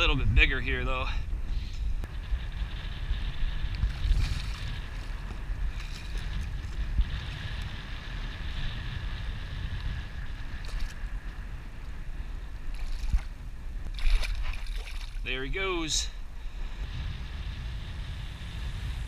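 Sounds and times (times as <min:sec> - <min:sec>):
wind rumbling on microphone: 0:00.0 - 0:19.0
fish splashing in water: 0:13.9 - 0:15.2.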